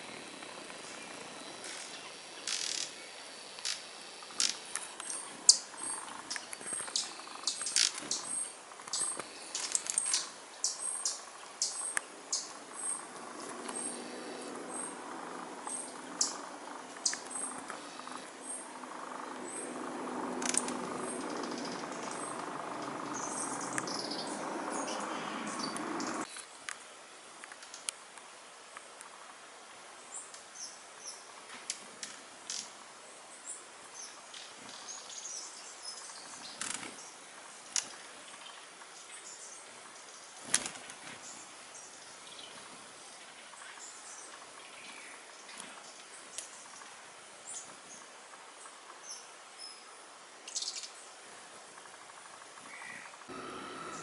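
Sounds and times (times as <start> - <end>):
hummingbirds chirping: 0.0 - 26.3, 41.2 - 54.0
low hum: 12.5 - 26.3, 53.3 - 54.0.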